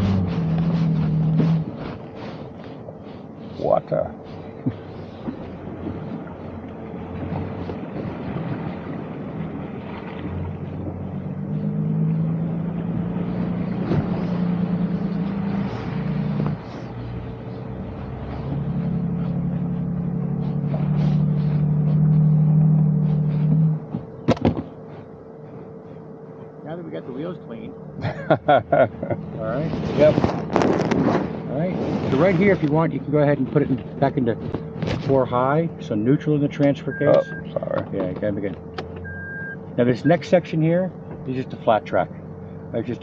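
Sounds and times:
engine droning under throttle: 0.0s - 43.0s
steady high hum: 0.0s - 43.0s
sharp knocks: 23.9s - 24.7s.

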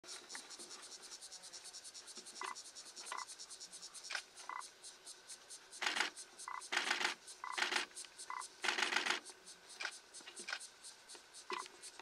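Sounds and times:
insects chirring: 0.0s - 12.0s
scratchy rustling bursts: 5.8s - 7.9s.

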